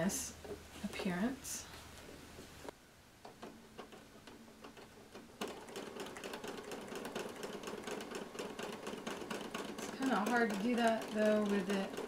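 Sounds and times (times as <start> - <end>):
sewing machine stitching: 3.4 - 12.0.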